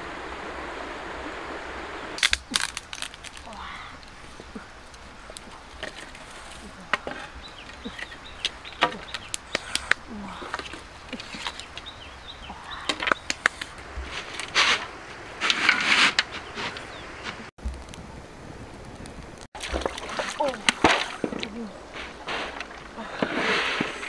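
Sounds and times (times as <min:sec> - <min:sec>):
wooden sticks clicking and knocking: 0:12.8 - 0:17.8.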